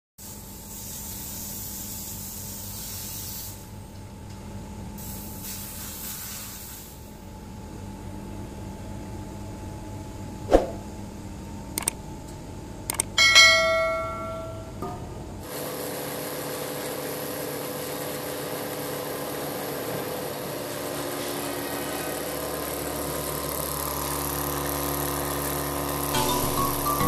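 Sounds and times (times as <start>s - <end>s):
low machine hum: 7.2s - 15.5s.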